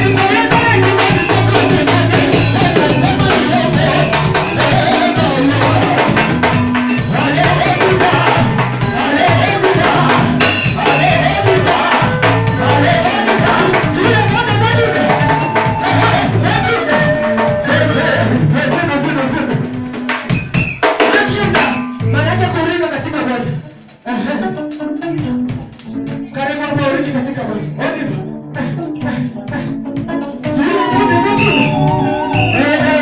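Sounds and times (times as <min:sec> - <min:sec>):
woman singing lead: 0:00.0 - 0:18.8, 0:28.7 - 0:33.0
drum kit dance beat: 0:00.0 - 0:27.5, 0:28.6 - 0:33.0
electric bass guitar: 0:00.0 - 0:33.0.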